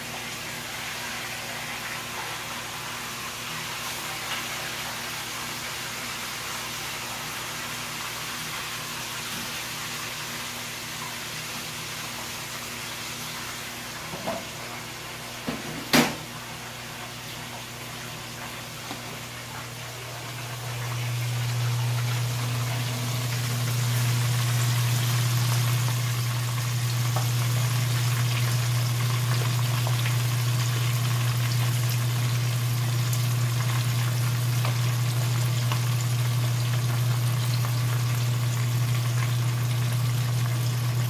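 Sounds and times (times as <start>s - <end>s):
meat sizzling in hot oil: 0.2s - 15.4s, 20.3s - 41.0s
hot oil popping: 20.8s - 41.0s.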